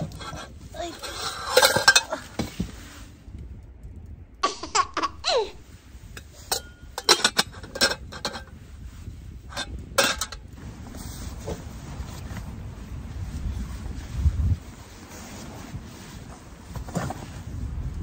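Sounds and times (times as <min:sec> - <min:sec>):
metal pots clanking: 0:00.0 - 0:02.5, 0:06.1 - 0:08.6, 0:09.5 - 0:10.5.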